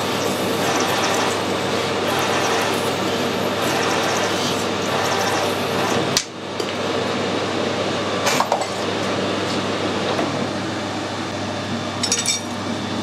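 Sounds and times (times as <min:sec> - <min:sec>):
metal lathe cutting steel: 0:00.0 - 0:06.2.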